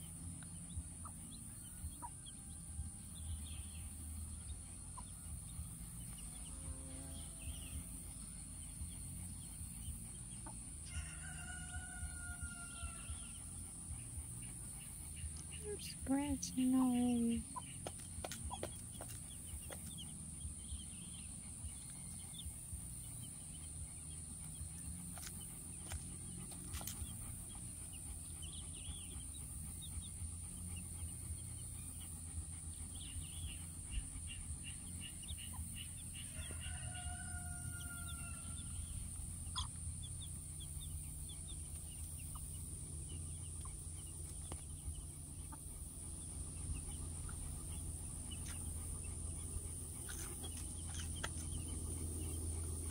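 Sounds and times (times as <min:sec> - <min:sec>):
chicks peeping: 0:00.0 - 0:52.9.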